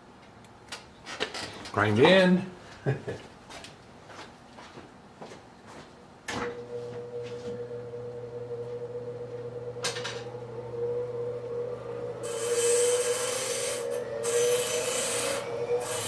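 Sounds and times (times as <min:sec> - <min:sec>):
rotary tool motor running: 0:12.1 - 0:16.0.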